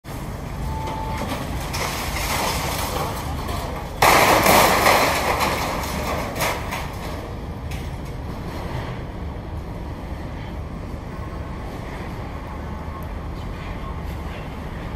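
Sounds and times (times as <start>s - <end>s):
low rumble of diesel machinery: 0.1s - 14.9s
masonry rubble crashing down: 1.2s - 7.2s.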